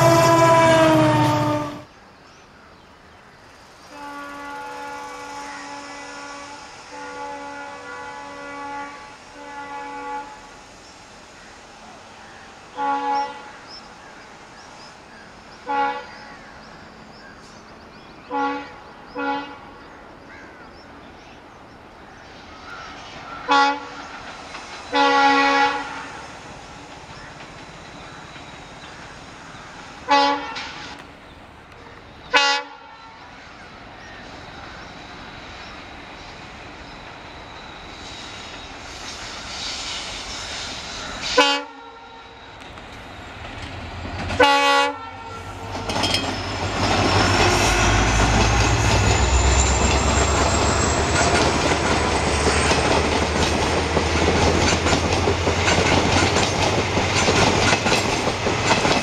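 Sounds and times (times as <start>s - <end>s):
locomotive horn blasts: 0.0s - 1.9s, 3.9s - 10.6s, 12.8s - 13.5s, 15.6s - 16.2s, 18.3s - 19.7s, 23.5s - 24.0s, 24.9s - 26.2s, 30.0s - 31.0s, 32.3s - 33.2s, 41.2s - 42.4s, 44.4s - 46.7s
train wheel clatter: 24.0s - 31.2s, 42.6s - 44.7s, 45.6s - 59.0s
locomotive engine rumble: 42.3s - 59.0s.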